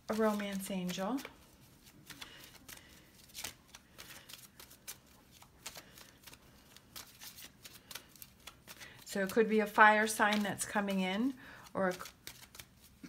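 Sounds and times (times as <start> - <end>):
cards being shuffled: 0.1 - 10.9, 11.6 - 13.0.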